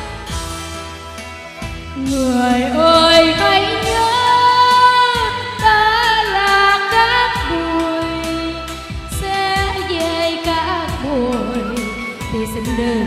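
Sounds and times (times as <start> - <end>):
backing track through speakers: 0.0 - 13.0
woman singing karaoke: 2.0 - 13.0.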